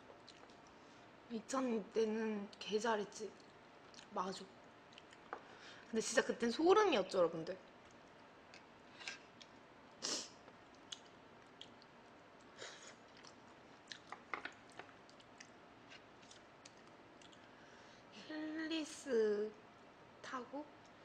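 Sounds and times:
person chewing food: 0:00.1 - 0:00.8, 0:04.8 - 0:05.4, 0:10.4 - 0:17.6.

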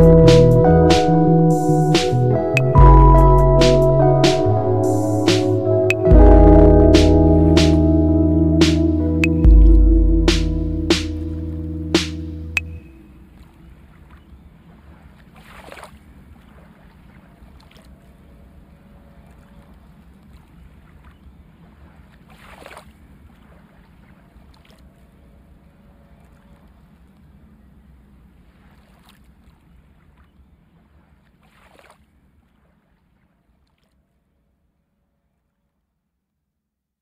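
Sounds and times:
faint low rumble: 0:00.0 - 0:13.2.

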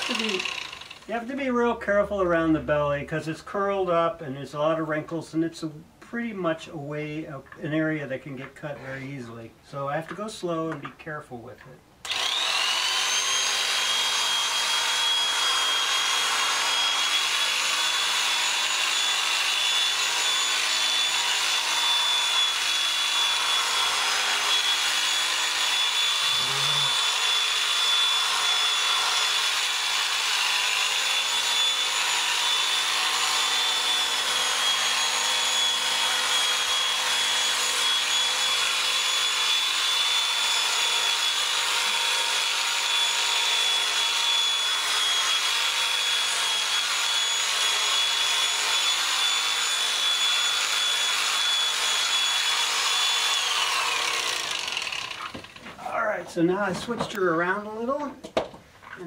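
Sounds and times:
electric shears whining: 0:00.0 - 0:01.2, 0:12.0 - 0:55.8.

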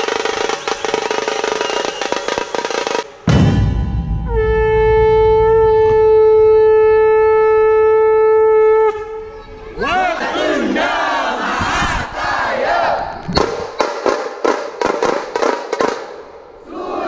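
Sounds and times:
low boom: 0:03.2 - 0:06.7
conch shell blown: 0:03.8 - 0:09.4
crowd shouting: 0:09.6 - 0:13.1, 0:16.6 - 0:17.0.

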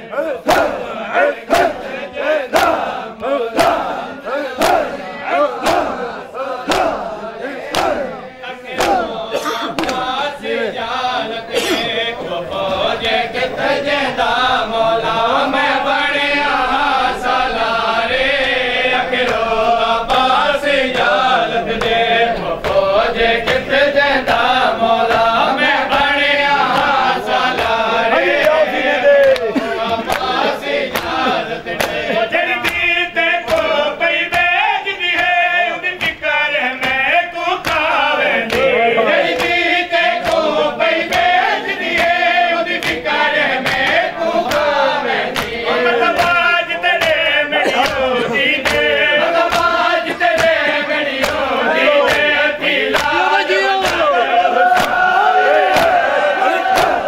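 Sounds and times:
men chanting a lament: 0:00.0 - 0:57.0
hands slapping chests: 0:00.4 - 0:00.8, 0:01.5 - 0:01.9, 0:02.5 - 0:08.1, 0:08.7 - 0:10.2, 0:20.1 - 0:23.7, 0:25.1 - 0:35.4, 0:36.0 - 0:36.2, 0:36.8 - 0:55.1, 0:55.7 - 0:56.1, 0:56.7 - 0:57.0.

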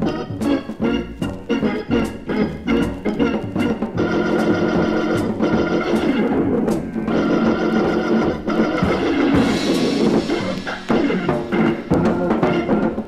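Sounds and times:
drum kit with cymbal hits: 0:00.0 - 0:13.0
organ chords: 0:00.0 - 0:13.0.

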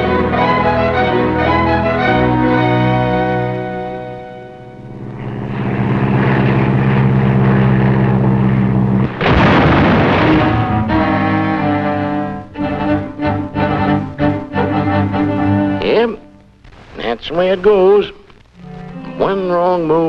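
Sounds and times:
orchestral music with sharp chords: 0:00.0 - 0:04.9, 0:08.7 - 0:16.1
propeller plane engines droning: 0:00.0 - 0:16.4
loud crash of planes colliding: 0:09.0 - 0:11.3.

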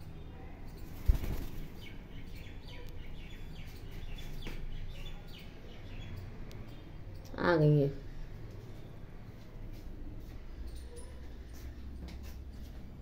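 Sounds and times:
parakeet flapping wings: 0:00.8 - 0:01.9.

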